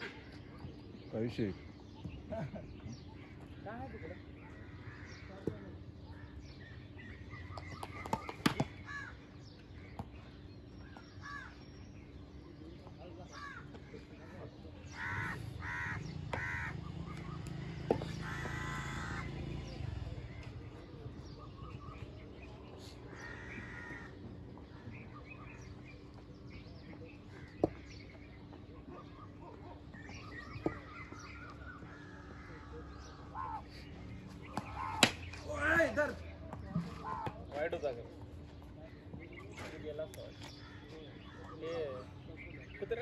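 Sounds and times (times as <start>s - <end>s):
crows cawing: 3.8s - 5.5s, 8.7s - 9.2s, 11.2s - 11.6s, 13.3s - 19.6s, 23.1s - 25.0s, 30.6s - 33.9s.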